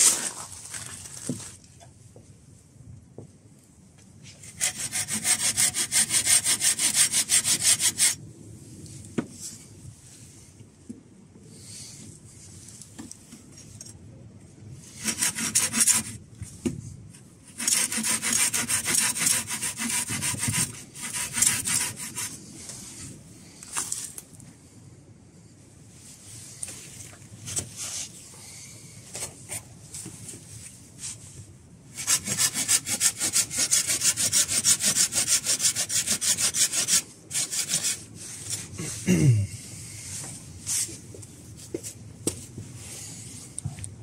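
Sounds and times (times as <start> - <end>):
pruning saw cutting wood: 4.6 - 8.2, 15.0 - 16.1, 17.5 - 22.3, 32.0 - 38.0.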